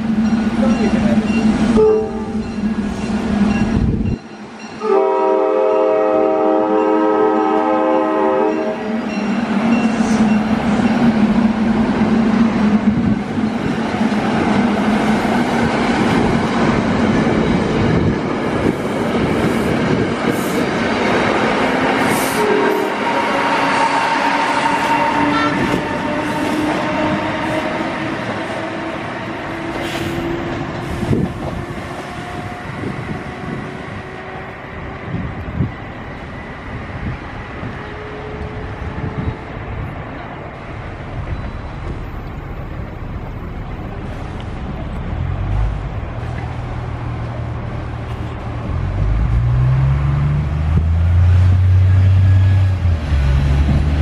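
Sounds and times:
electric locomotive whine: 0.0s - 54.0s
bus diesel engine driving past: 38.4s - 54.0s.

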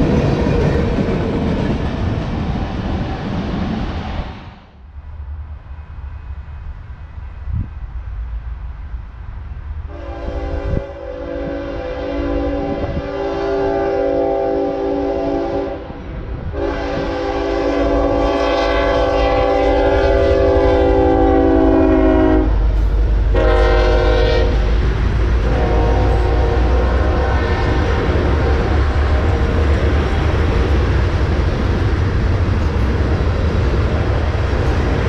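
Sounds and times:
train rumbling past on rails: 0.0s - 35.0s
locomotive air horn: 9.9s - 16.0s, 16.6s - 22.6s, 23.3s - 24.7s, 25.4s - 29.9s.

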